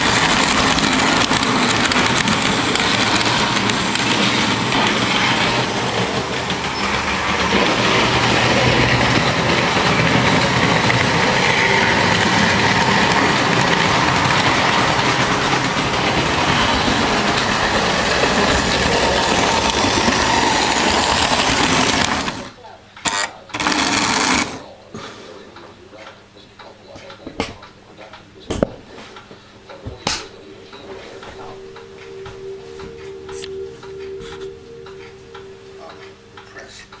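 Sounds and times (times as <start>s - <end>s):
wheels rattling over rails: 0.0s - 24.7s
small electric motors whirring: 23.1s - 24.6s.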